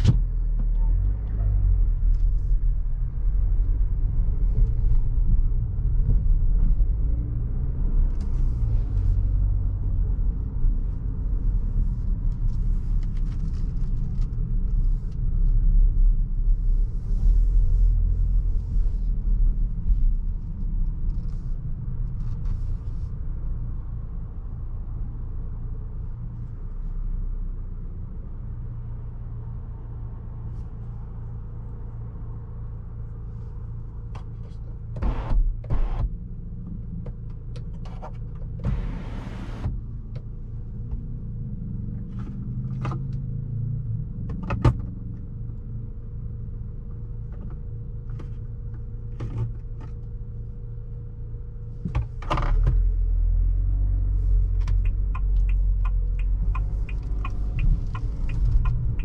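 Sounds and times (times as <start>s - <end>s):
car engine running: 31.5s - 59.0s.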